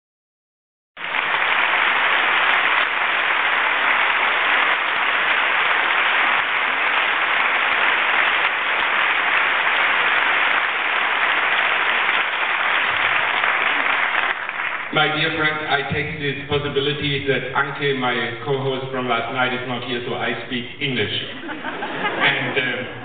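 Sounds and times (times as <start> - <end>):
audience applauding: 1.0 - 15.9, 21.4 - 23.0.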